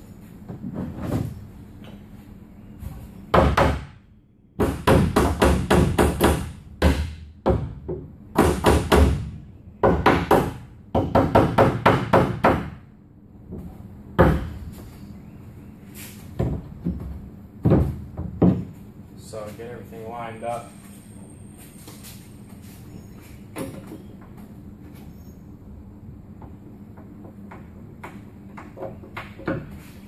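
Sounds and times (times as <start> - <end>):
wooden knocks and clunks: 16.3 - 18.9, 26.4 - 29.9.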